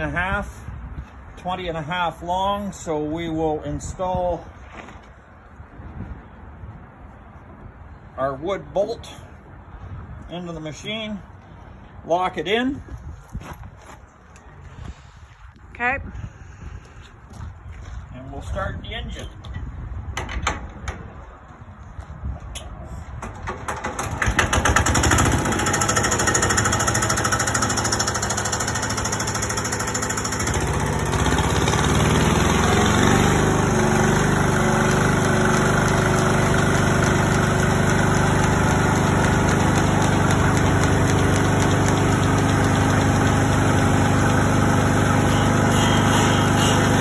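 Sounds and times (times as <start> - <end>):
diesel engine starting and running: 22.6 - 47.0.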